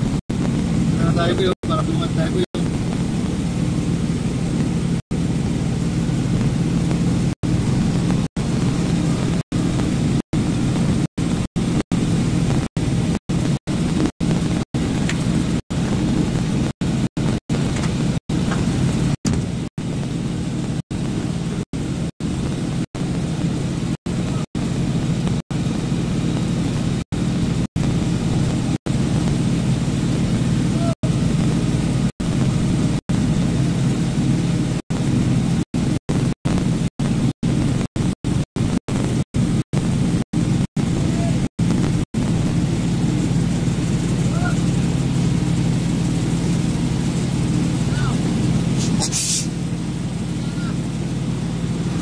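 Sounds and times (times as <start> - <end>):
truck engine droning: 0.0 - 52.0.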